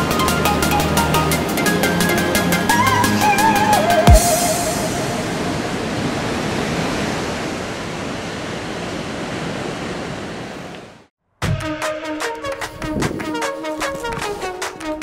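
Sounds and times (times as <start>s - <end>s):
ocean waves breaking: 0.0s - 11.1s.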